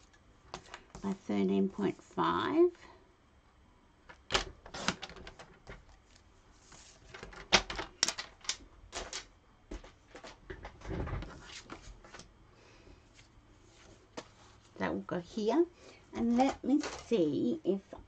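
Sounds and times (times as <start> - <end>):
paper rustling: 4.4 - 9.3.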